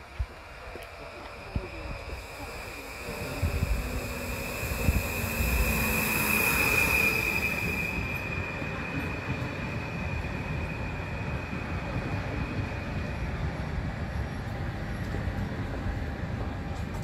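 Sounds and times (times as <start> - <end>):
rumble of passing train cars: 0.0 - 17.0
high hiss: 2.1 - 8.3
train brakes squealing: 2.1 - 13.2.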